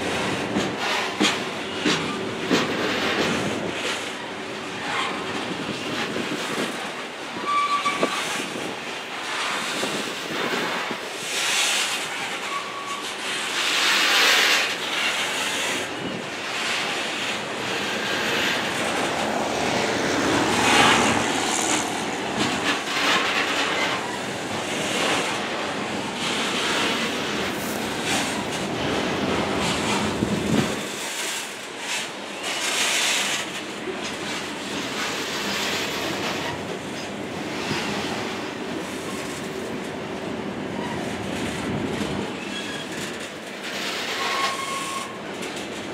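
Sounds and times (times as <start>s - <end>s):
freight train wheels rumbling: 0.0s - 45.9s
high-pitched wheel squeals: 44.2s - 45.2s.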